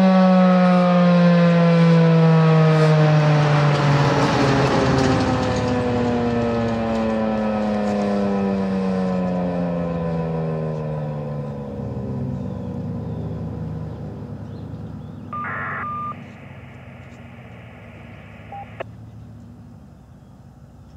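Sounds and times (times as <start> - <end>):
electronic siren tone sliding down: 15.4 - 18.8.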